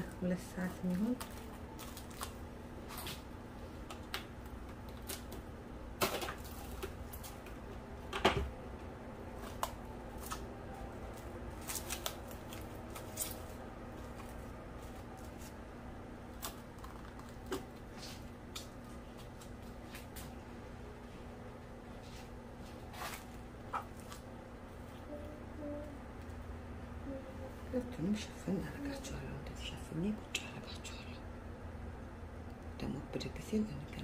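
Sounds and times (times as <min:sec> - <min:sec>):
plastic wrap crinkling: 0:00.0 - 0:03.3, 0:11.1 - 0:15.6, 0:16.3 - 0:20.2.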